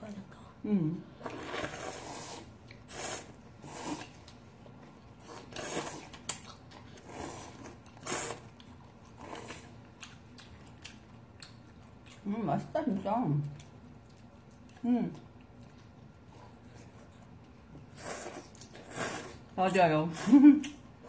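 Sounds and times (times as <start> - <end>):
people slurping noodles: 1.2 - 4.2, 5.2 - 6.2, 7.0 - 8.5, 17.9 - 19.4.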